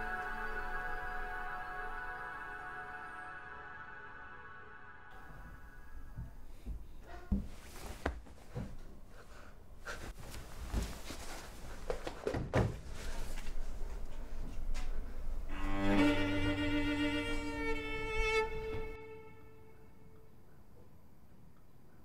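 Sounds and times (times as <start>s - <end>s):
cello and violin chord: 0.0s - 6.6s, 15.5s - 20.3s
soft knocks and rustles: 6.2s - 9.0s, 9.9s - 15.1s.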